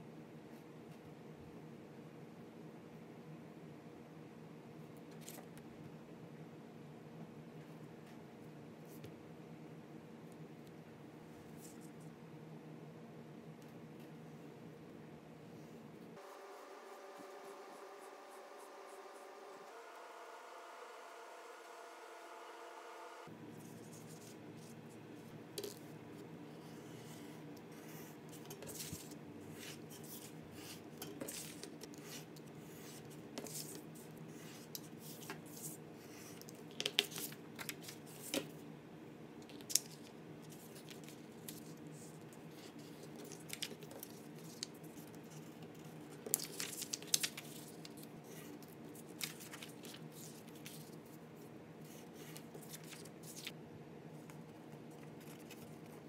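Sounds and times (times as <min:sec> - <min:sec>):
faint steady hum: 0:00.0 - 0:56.0
paper rustling and creasing: 0:39.6 - 0:51.1, 0:51.9 - 0:53.6, 0:54.2 - 0:56.0.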